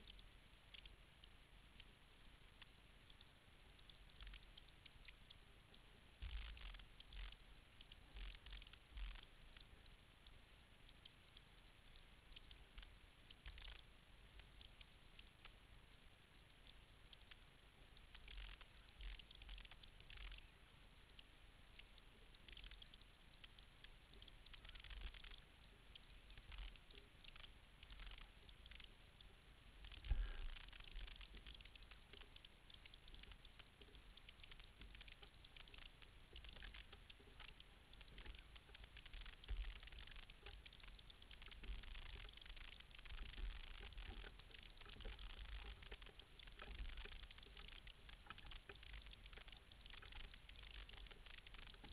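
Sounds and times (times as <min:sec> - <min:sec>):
water splashing against hull: 0:24.4 - 0:51.9.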